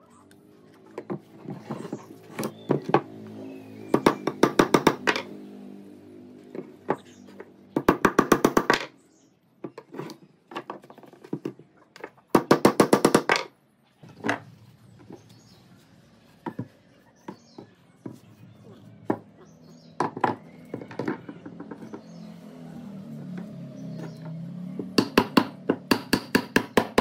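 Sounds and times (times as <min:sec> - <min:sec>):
hammer tapping wooden dowels: 0:03.9 - 0:05.3, 0:06.6 - 0:08.9, 0:23.4 - 0:27.0.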